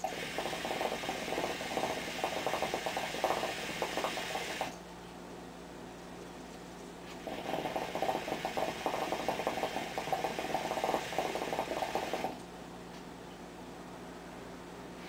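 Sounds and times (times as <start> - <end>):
hookah water bubbling: 0.0 - 4.8, 7.1 - 12.4.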